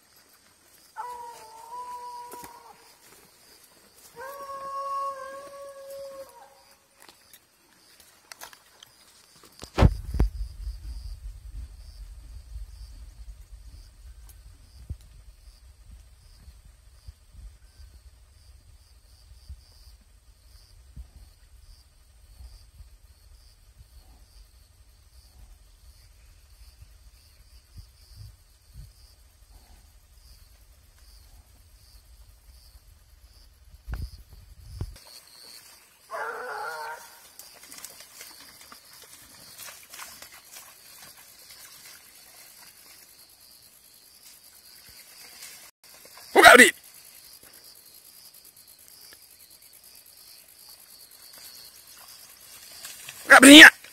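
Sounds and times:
insects chirping: 0:00.0 - 0:53.9
wind buffeting microphone: 0:09.8 - 0:19.7.

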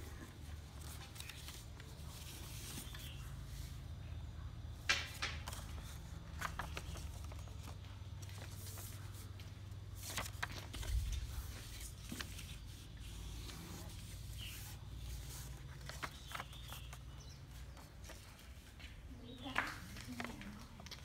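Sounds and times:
paper rustling and crackling: 0:00.0 - 0:03.8, 0:04.9 - 0:21.0.

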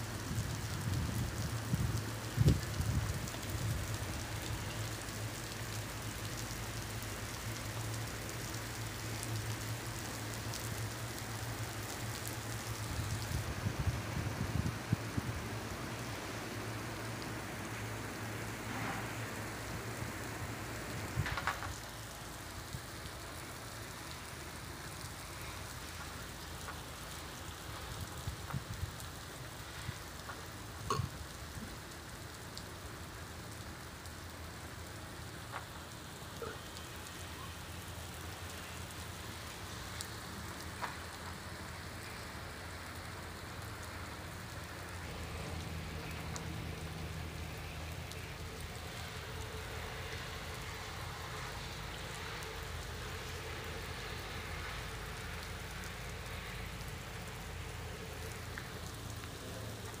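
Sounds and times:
rain on flooded road: 0:00.0 - 1:00.0
sharp drip ticks: 0:37.9 - 0:44.9, 0:45.5 - 1:00.0.

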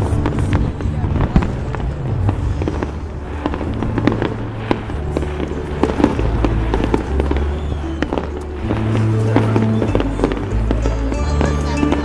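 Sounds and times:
fireworks bangs and crackles: 0:00.0 - 0:12.0.

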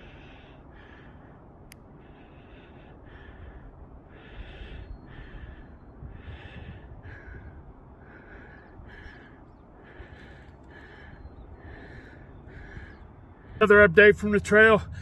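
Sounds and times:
person breathing hard: 0:00.0 - 0:13.6
low rumble: 0:10.9 - 0:15.0.

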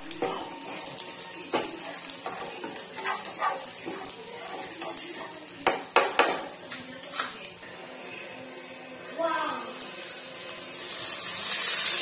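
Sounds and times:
garlic and onion sizzling in oil: 0:00.0 - 0:12.0
spatula stirring and scraping pan: 0:00.1 - 0:07.3
spatula knocking against pan: 0:05.6 - 0:06.4.

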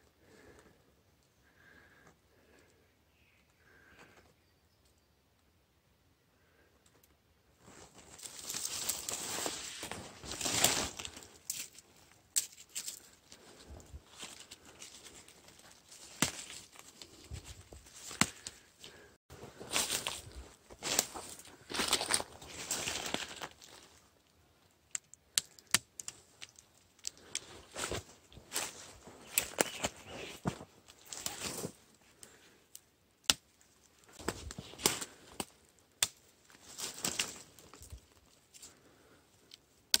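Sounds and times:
feet moving through dry leaves: 0:07.7 - 0:11.9, 0:12.5 - 0:24.0, 0:27.6 - 0:31.8
dry leaves rustling: 0:07.7 - 0:18.2, 0:18.9 - 0:24.0
stems snapping: 0:08.2 - 0:13.5, 0:14.1 - 0:19.1, 0:24.9 - 0:29.9, 0:32.2 - 0:38.0, 0:39.4 - 0:40.0
plant shoots snapping: 0:16.0 - 0:16.8, 0:18.0 - 0:18.6, 0:24.9 - 0:27.4.

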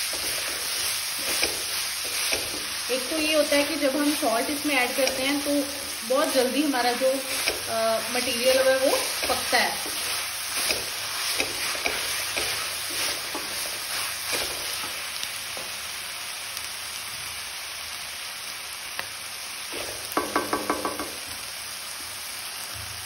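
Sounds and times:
spatula scraping: 0:00.0 - 0:15.1
onions sizzling in oil: 0:00.0 - 0:23.0.

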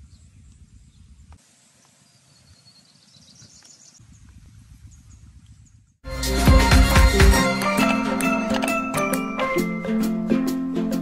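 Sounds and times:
faint bird chirps: 0:00.0 - 0:06.0.

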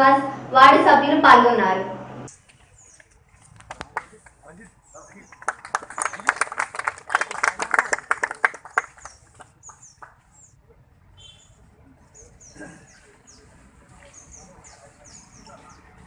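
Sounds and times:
small birds chirping: 0:02.3 - 0:03.2, 0:04.5 - 0:06.3, 0:08.7 - 0:10.6, 0:11.2 - 0:16.0
people clapping: 0:03.6 - 0:04.4, 0:05.1 - 0:10.2.

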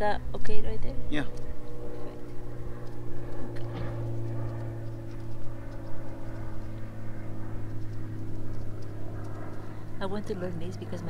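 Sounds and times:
low mechanical hum: 0:00.0 - 0:11.0
faint ticks: 0:07.6 - 0:09.7.

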